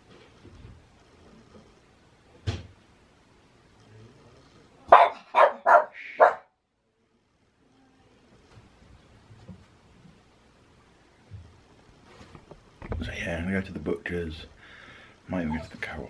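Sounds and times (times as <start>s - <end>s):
dog barking: 4.9s - 6.5s.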